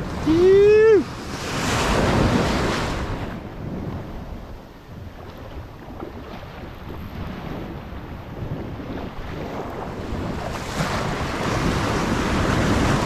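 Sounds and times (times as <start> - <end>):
ocean surf washing: 0.0 - 13.0
wind buffeting microphone: 0.0 - 13.0.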